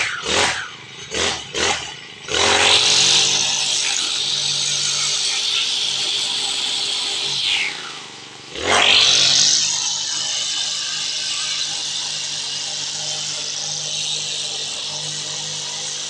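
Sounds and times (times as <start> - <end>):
brush cutter engine revving: 0.0 - 16.0
line head cutting grass: 0.0 - 16.0.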